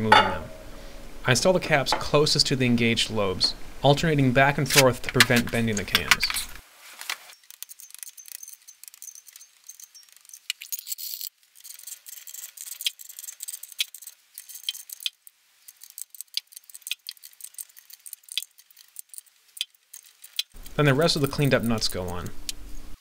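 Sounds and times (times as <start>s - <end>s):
small metal parts clinking: 7.3s - 20.5s.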